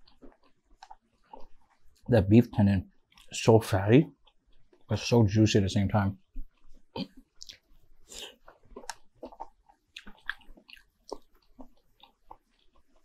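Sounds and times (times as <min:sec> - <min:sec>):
person chewing with mouth clicks: 0:00.0 - 0:02.1, 0:04.1 - 0:04.9, 0:06.2 - 0:13.0.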